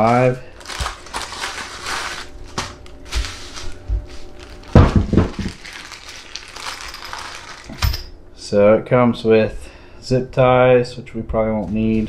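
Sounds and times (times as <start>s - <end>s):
plastic bag crinkling: 0.0s - 7.9s
parts thudding on wooden table: 4.7s - 5.6s.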